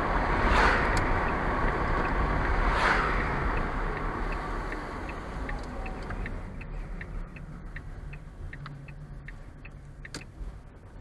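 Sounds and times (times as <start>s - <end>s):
engine and road rumble: 0.0s - 11.0s
turn signal ticking: 0.0s - 11.0s.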